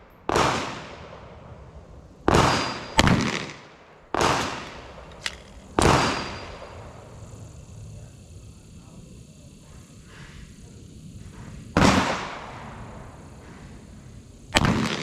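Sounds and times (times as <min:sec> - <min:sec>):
handgun shots echoing: 0:02.3 - 0:06.7, 0:14.6 - 0:15.0.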